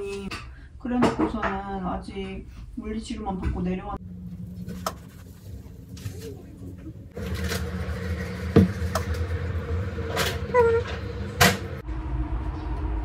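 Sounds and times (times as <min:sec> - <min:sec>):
induction hob hum: 0:03.7 - 0:13.0.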